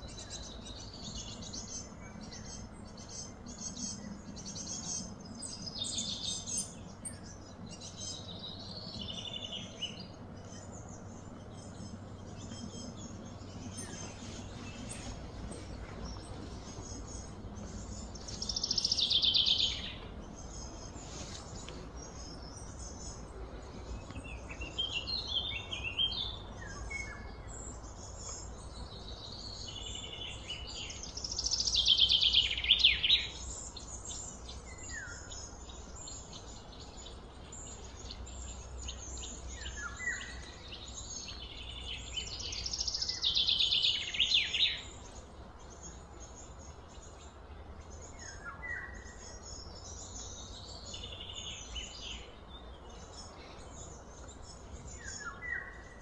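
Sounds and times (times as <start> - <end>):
steady low rumble: 0.0 - 42.5
birds chirping and singing: 0.0 - 56.0
loud trilling birdsong: 0.0 - 56.0.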